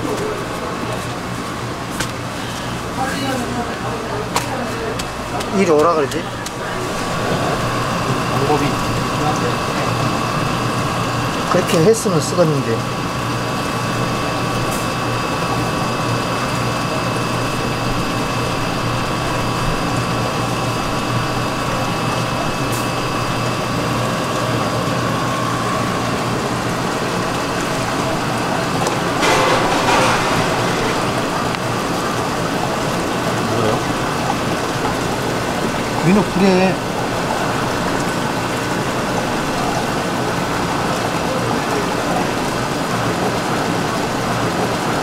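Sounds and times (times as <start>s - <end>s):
steady hum: 0.0s - 45.0s
loud rush of noise: 28.8s - 33.2s.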